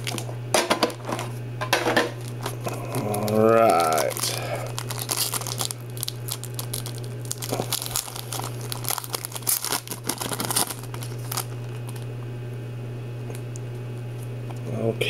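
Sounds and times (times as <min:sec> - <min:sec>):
foil wrapper tearing and crinkling: 0:00.0 - 0:00.3, 0:02.2 - 0:12.1
steady low hum: 0:00.0 - 0:15.0.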